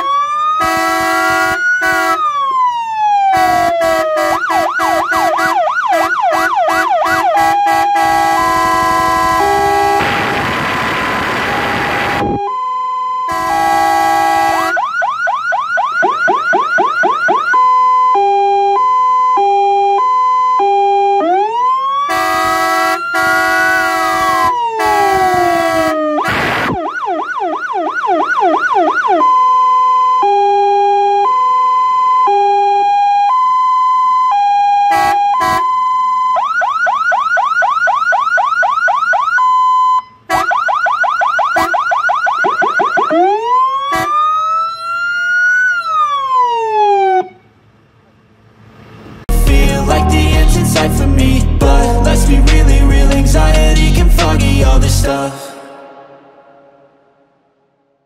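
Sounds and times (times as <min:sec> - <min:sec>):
fire engine horn blasts: 0:00.0 - 0:02.5, 0:03.2 - 0:14.9, 0:22.0 - 0:26.8, 0:32.2 - 0:33.1, 0:34.7 - 0:35.9, 0:40.2 - 0:40.7, 0:41.5 - 0:41.8, 0:43.8 - 0:44.4, 0:49.3 - 0:57.8
fire engine siren: 0:00.0 - 0:47.6, 0:49.3 - 0:58.0.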